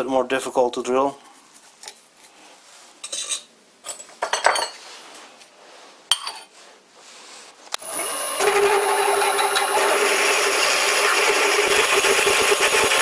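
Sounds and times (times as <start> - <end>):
drill cutting into steel: 7.8 - 13.0.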